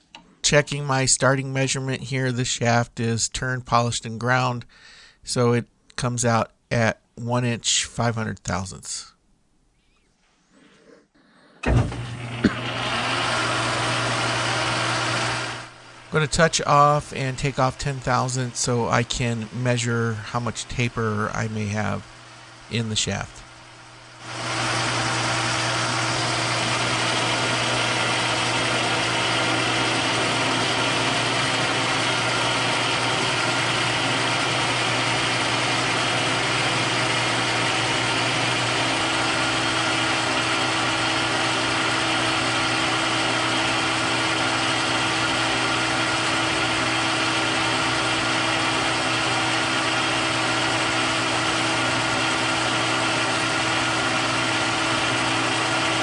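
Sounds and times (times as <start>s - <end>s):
metal lathe running: 11.6s - 56.0s.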